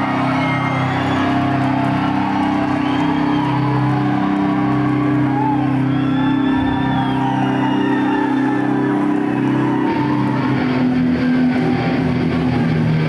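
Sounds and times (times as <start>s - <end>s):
crowd whooping and shouting: 0.0s - 13.0s
live metal band playing: 0.0s - 13.0s.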